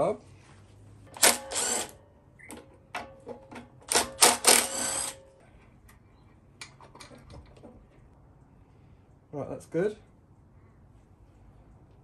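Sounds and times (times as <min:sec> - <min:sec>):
impact driver hammering: 0:03.0 - 0:05.2.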